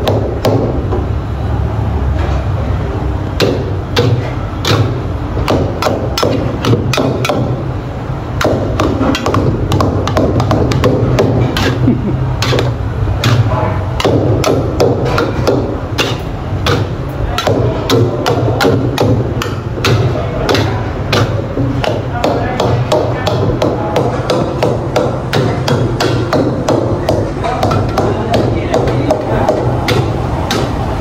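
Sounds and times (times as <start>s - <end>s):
gas burner roaring: 0.0s - 22.2s
spatulas clanking against a wok: 10.7s - 22.9s.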